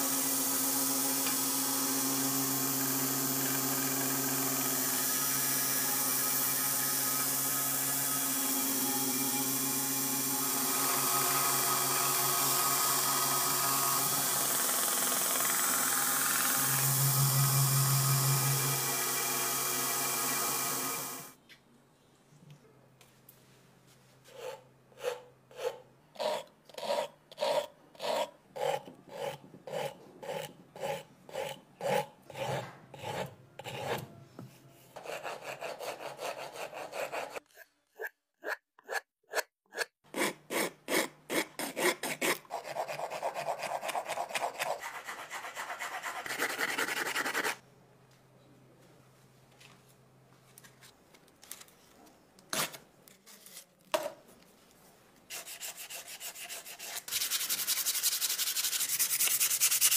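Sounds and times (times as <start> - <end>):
file rasping on wood: 24.3 - 34.1, 35.0 - 37.4, 38.4 - 47.6, 55.3 - 59.9
sandpaper rubbing: 42.5 - 47.6, 55.3 - 59.9.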